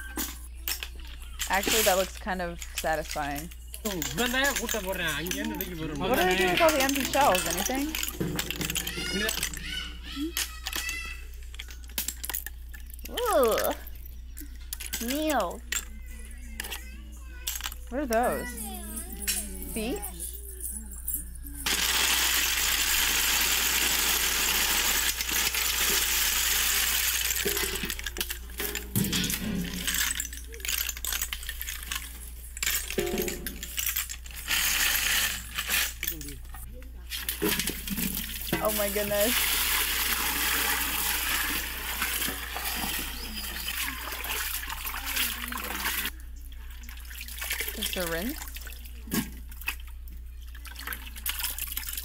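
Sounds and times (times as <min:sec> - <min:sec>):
snail shells clattering in metal basin: 0:00.5 - 0:13.9, 0:21.6 - 0:36.6, 0:37.2 - 0:46.1
water pouring into metal basin: 0:21.6 - 0:28.2, 0:37.2 - 0:46.2
hands splashing washing snails: 0:21.7 - 0:28.1, 0:37.1 - 0:46.1, 0:46.8 - 0:49.9, 0:50.5 - 0:52.0.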